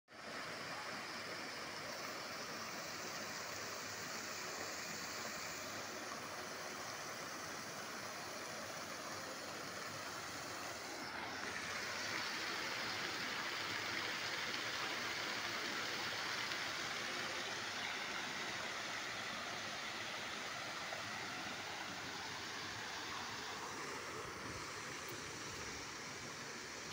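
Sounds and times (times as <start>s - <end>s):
fountain water splashing: 0.1s - 26.9s.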